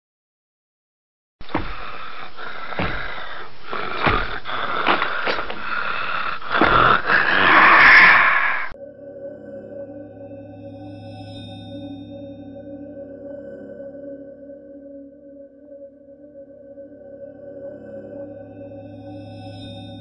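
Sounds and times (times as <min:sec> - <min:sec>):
heavy thumps: 0:01.4 - 0:08.7
raspy growl-like noise: 0:01.5 - 0:08.8.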